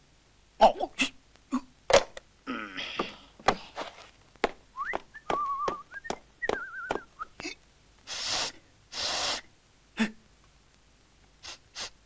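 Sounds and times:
breathy puffs: 2.5s - 4.1s
clicking footsteps: 3.0s - 7.3s
man whistling a tune: 4.8s - 7.3s.

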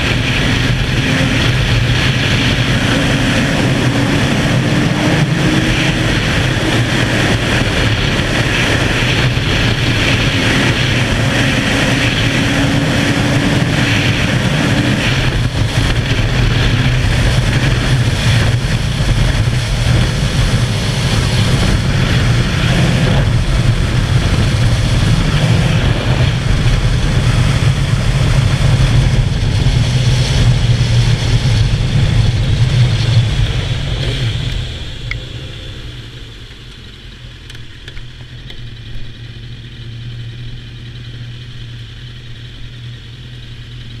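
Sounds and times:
wind rush: 0.0s - 42.0s
motorcycle engine running: 0.0s - 44.0s.

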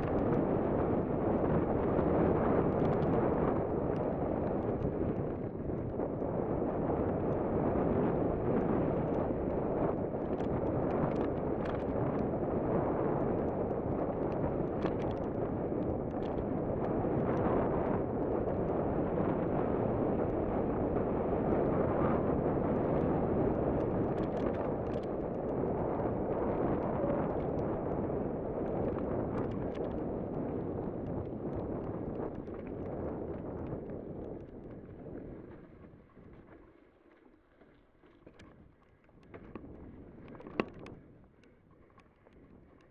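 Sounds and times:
bike tyres rolling over dirt: 0.0s - 42.9s
wind on microphone: 0.0s - 42.9s.

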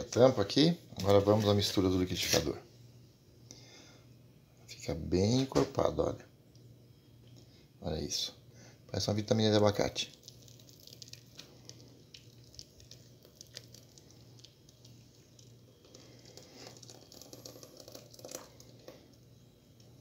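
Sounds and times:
cake batter squishing and dropping: 10.0s - 19.0s.

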